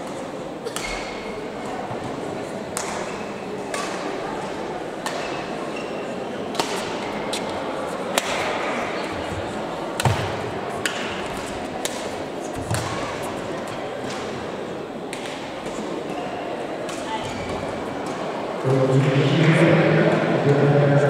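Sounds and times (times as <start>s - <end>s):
murmur of voices: 0.0s - 21.0s
racquets hitting shuttlecocks: 6.5s - 7.1s, 8.1s - 8.8s, 10.0s - 13.4s.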